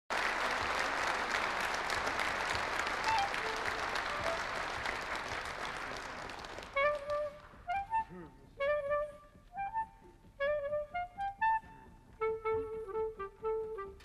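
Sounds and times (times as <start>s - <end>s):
audience applauding: 0.1s - 8.0s
clarinet playing: 2.9s - 5.0s, 6.4s - 14.0s.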